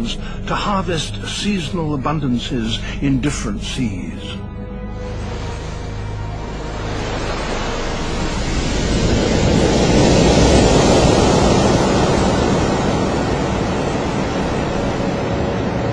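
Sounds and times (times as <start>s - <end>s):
seawater splash: 5.1s - 15.9s.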